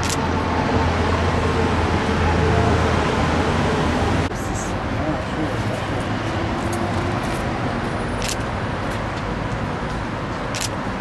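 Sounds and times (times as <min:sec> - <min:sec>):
sharp clicks: 0:00.0 - 0:00.2, 0:08.2 - 0:08.4, 0:10.5 - 0:10.8
low traffic rumble: 0:00.0 - 0:11.0.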